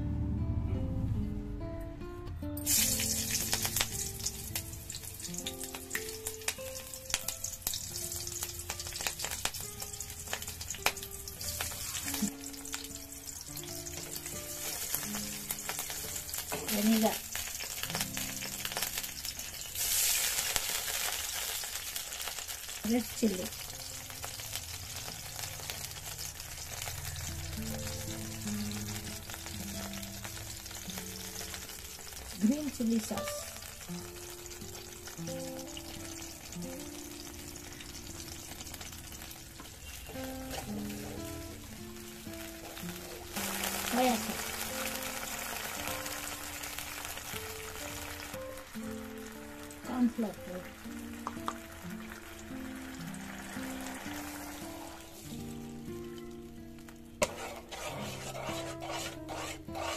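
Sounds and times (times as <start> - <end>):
soft background music: 0.0 - 59.9
chillies sizzling in hot oil: 2.6 - 59.9
oil spitting crackles and pops: 50.0 - 52.5.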